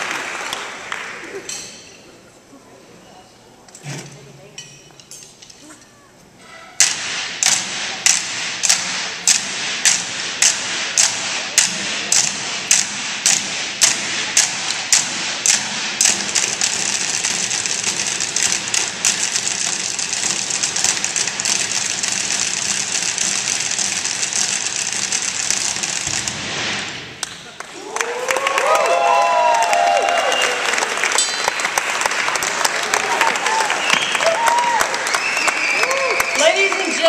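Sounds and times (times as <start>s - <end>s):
percussion ensemble drumming: 6.8s - 27.2s.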